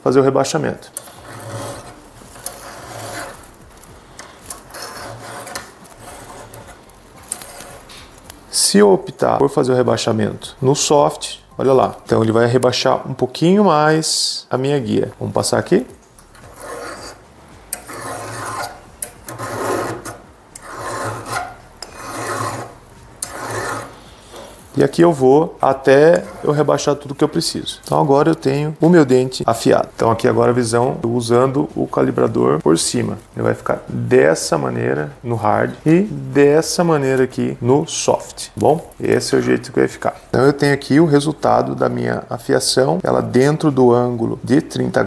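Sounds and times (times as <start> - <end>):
file rasping on chainsaw chain: 1.0 - 3.5, 4.4 - 7.9, 16.3 - 24.7, 26.1 - 26.7.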